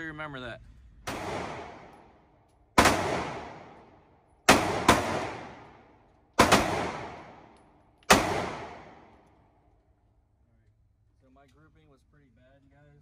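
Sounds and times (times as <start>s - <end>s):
pistol shots echoing indoors: 1.1s - 9.6s.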